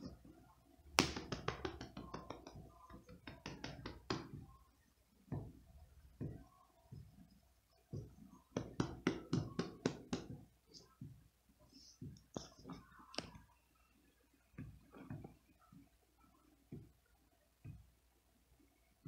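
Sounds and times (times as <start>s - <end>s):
soft hand taps on cat: 1.0s - 4.5s, 8.0s - 10.4s.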